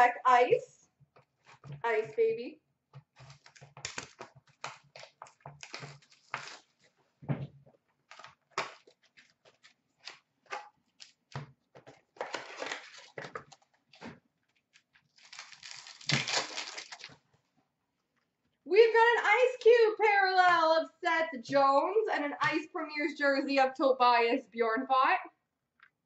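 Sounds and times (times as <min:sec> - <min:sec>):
wrapper tearing open: 0:03.2 - 0:06.9, 0:12.2 - 0:13.7, 0:15.0 - 0:17.2
wrappers crinkling and rustling: 0:03.2 - 0:07.0, 0:08.1 - 0:11.3, 0:11.9 - 0:17.2.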